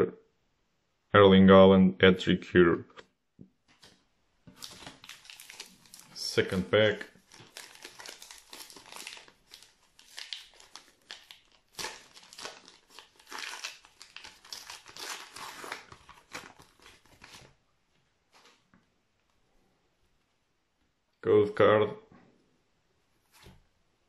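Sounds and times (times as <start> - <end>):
plastic wrapper crinkling and tearing: 3.8 - 17.6.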